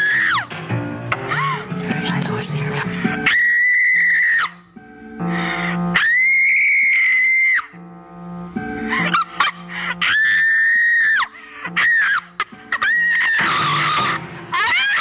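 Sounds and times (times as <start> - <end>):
background music: 0.0 - 15.0
woman screaming: 3.3 - 4.6, 6.0 - 7.7, 8.9 - 15.0.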